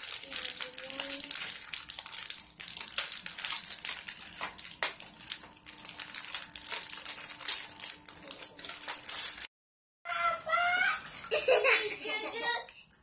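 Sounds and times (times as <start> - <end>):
plastic bag crinkling: 0.0 - 9.5
plastic pieces clicking and rattling: 0.0 - 9.5.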